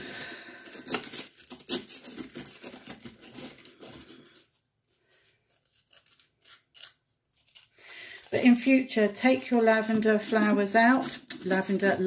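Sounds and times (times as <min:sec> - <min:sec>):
gritty scrub scraping by hand: 0:05.5 - 0:12.0.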